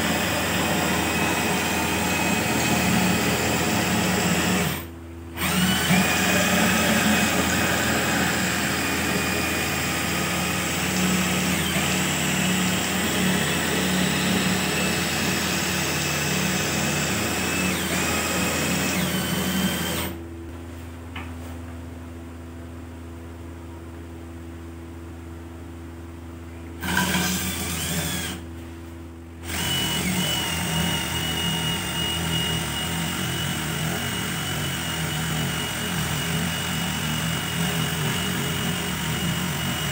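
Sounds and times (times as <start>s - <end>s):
cordless drill motor whine: 0.0s - 20.2s, 26.8s - 28.4s, 29.4s - 39.9s
wood being shaved: 0.0s - 20.2s, 29.4s - 39.9s.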